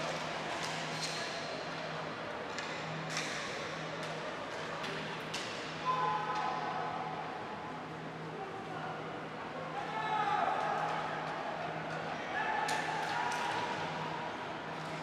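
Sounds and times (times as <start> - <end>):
hockey sticks clacking on ball: 0.1 - 1.3, 4.8 - 5.7.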